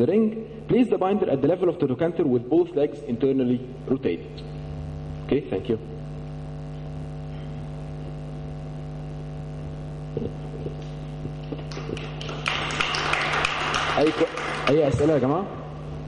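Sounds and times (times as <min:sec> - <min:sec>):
electrical mains hum: 0:00.0 - 0:16.0
audience applause: 0:11.5 - 0:15.2.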